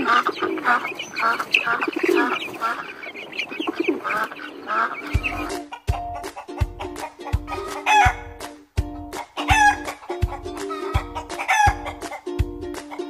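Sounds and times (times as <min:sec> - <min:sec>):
chicken clucking: 0:00.0 - 0:08.4, 0:09.0 - 0:13.0
music with thudding beat: 0:05.0 - 0:13.0
rooster crowing: 0:07.6 - 0:08.2.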